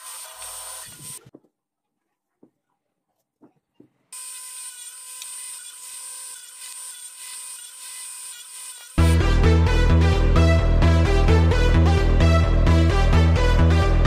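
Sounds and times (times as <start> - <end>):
faint taps: 3.3 - 4.0
miter saw whining: 4.2 - 9.2.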